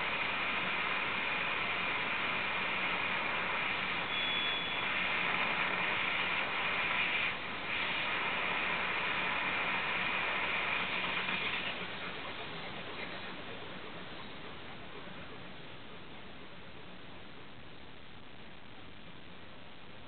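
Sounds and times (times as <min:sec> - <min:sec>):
radio static hiss: 0:00.0 - 0:20.0
high whistle: 0:04.0 - 0:05.0.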